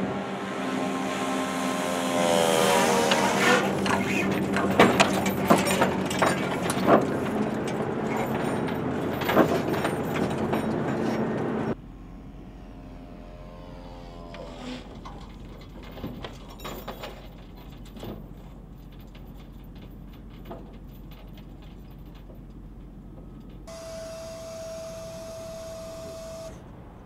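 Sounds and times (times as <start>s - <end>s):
drone engine buzzing past: 0.0s - 4.4s, 11.8s - 15.0s, 23.7s - 27.0s
sharp clicks and rattles: 15.0s - 26.6s
steady hum: 23.7s - 27.0s.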